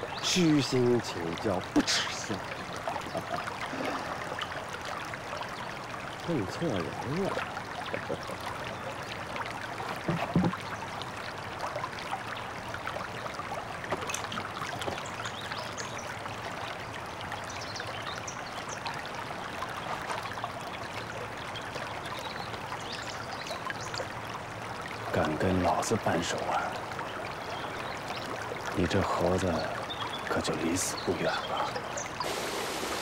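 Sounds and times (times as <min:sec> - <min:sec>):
running water: 0:00.0 - 0:33.0
soft knock: 0:10.0 - 0:10.6.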